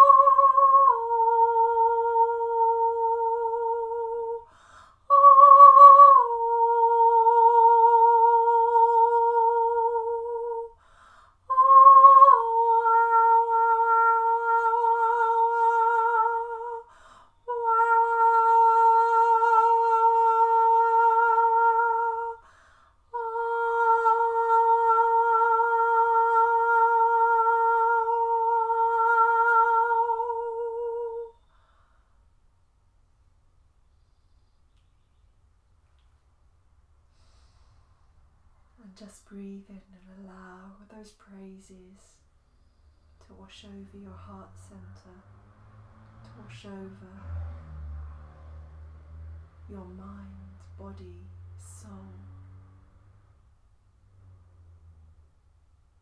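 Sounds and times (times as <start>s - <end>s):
woman singing wordless notes: 0.0s - 31.5s, 38.8s - 42.2s, 43.2s - 45.3s, 46.3s - 47.4s, 49.7s - 52.6s.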